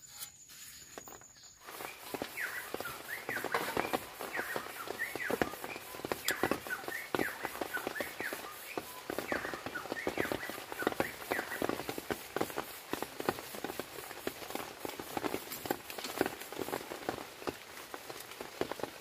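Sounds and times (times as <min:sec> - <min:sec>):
chirping animal calls: 0:01.7 - 0:11.8.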